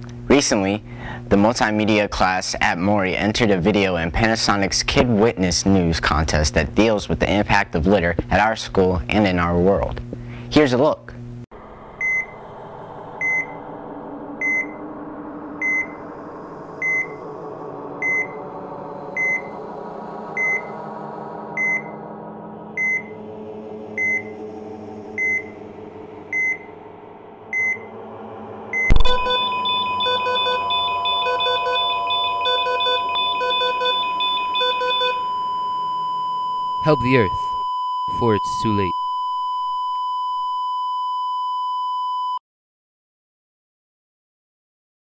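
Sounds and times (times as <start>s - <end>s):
low drone: 11.5s - 36.2s
heart monitor beeps: 12.0s - 12.3s, 13.2s - 13.5s, 14.4s - 14.8s, 15.6s - 15.9s, 16.8s - 17.2s, 18.0s - 18.4s, 19.2s - 19.5s, 20.4s - 20.7s, 21.6s - 21.9s, 22.8s - 23.1s, 24.0s - 24.2s, 25.2s - 25.4s, 26.4s - 26.6s, 27.6s - 27.8s, 28.8s - 42.4s
pulsing alarm: 12.0s - 26.8s, 27.4s - 38.2s
flatline tone: 13.1s - 20.8s, 27.4s - 40.6s
sudden hit: 27.4s - 30.6s.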